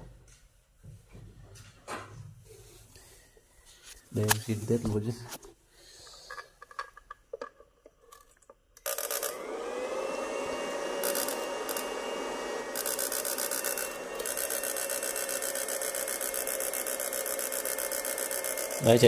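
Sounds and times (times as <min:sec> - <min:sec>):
electronic whine and buzz: 0:10.9 - 0:19.0.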